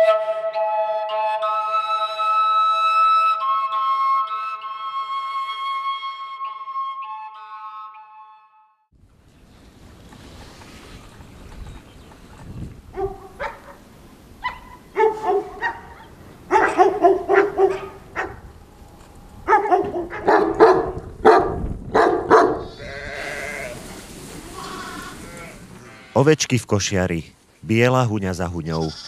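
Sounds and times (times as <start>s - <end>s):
dog barking: 12.9s - 13.8s, 14.4s - 18.5s, 19.4s - 22.7s.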